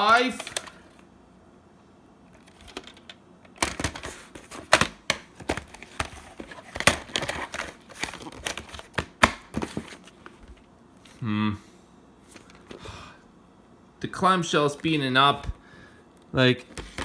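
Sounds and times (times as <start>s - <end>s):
plastic cassette case handled: 0.1s - 0.8s, 2.4s - 10.6s.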